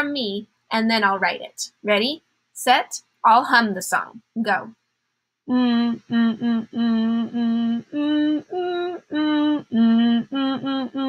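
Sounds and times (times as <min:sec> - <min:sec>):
woman humming: 0:05.5 - 0:11.0.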